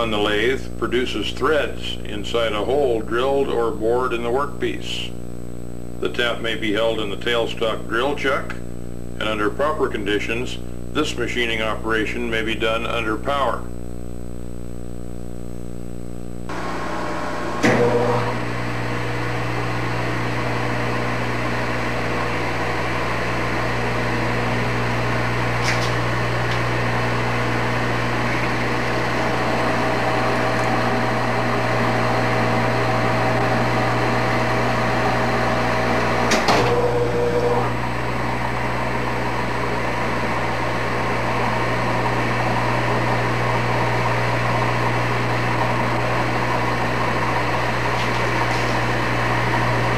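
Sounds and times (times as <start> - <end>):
lathe motor hum: 16.5 - 49.9.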